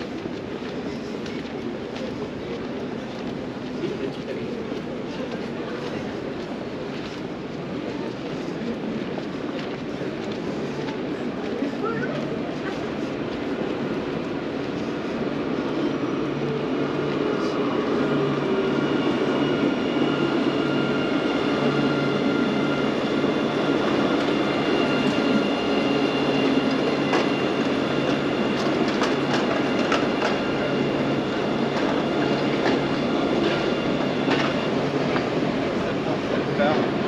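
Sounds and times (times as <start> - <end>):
tram passing hum: 0.0 - 37.0.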